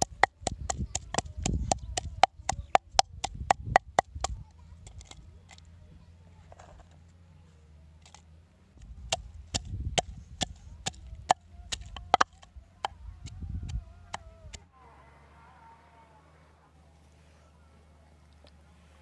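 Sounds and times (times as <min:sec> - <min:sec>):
wooden pestle pounding in mortar: 0:00.0 - 0:04.4, 0:09.1 - 0:12.4.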